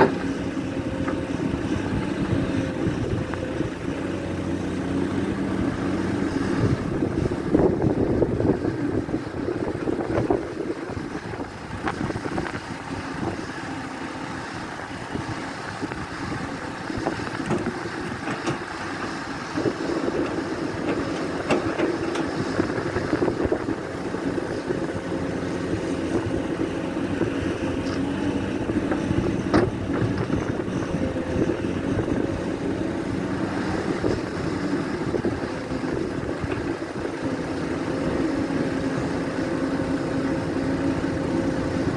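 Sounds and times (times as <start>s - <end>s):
excavator diesel engine running: 0.0s - 41.9s.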